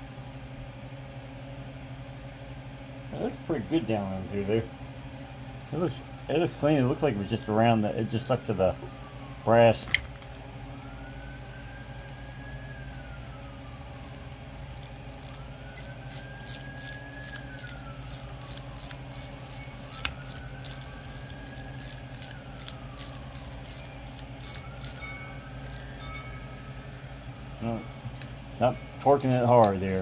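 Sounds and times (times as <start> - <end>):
low steady hum: 0.0 - 30.0
faint whine: 8.2 - 30.0
hand ratchet clicking: 13.4 - 25.0, 25.6 - 25.8.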